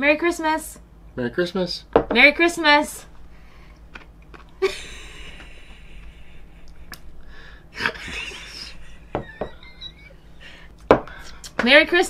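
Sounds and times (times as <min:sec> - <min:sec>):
stifled laughter: 0:04.6 - 0:07.0, 0:07.8 - 0:10.6.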